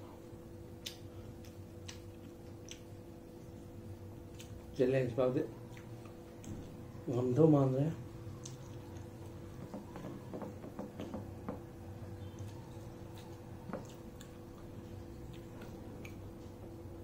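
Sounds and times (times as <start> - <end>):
steady low hum: 0.0 - 17.0
fingers squishing food on plate: 8.3 - 16.6.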